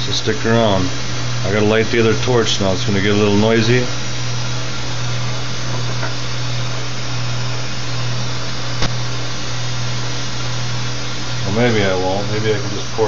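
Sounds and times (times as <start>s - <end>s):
gas torches hissing: 0.0s - 13.0s
sharp click: 8.8s - 9.0s.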